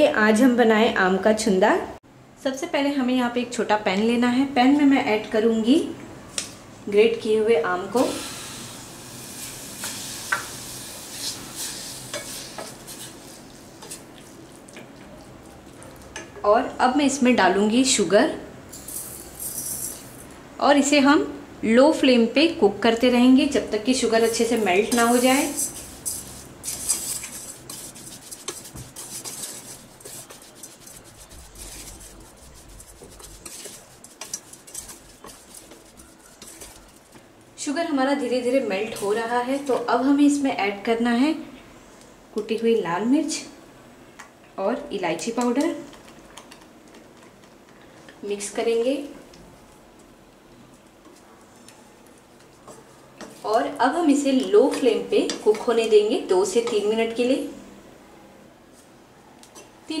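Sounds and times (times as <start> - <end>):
steady hiss: 8.0 - 13.9
spatula scraping a steel pan: 24.2 - 37.1.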